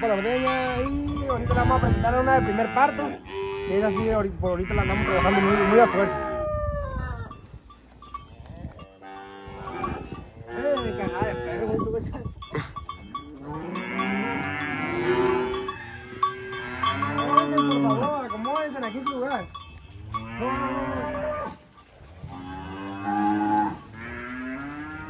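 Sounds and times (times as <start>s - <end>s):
cattle mooing: 1.6s - 6.4s, 8.4s - 11.8s, 12.6s - 18.2s, 19.9s - 25.0s.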